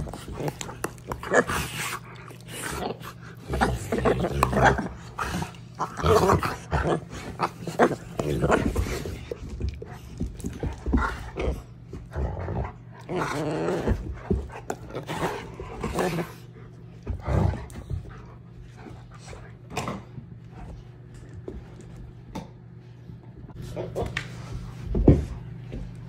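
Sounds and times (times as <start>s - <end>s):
dog growling: 0.0s - 9.4s, 10.7s - 17.8s.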